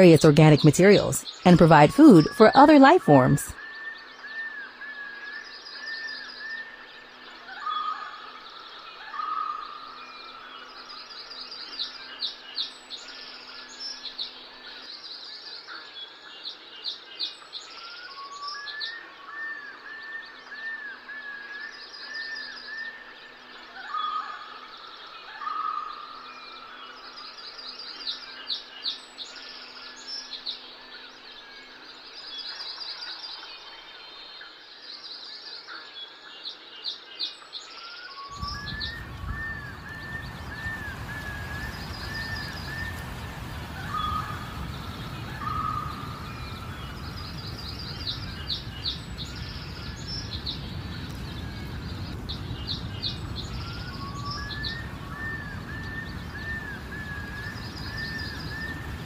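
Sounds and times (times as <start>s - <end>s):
birds chirping and whistling: 38.0s - 59.0s.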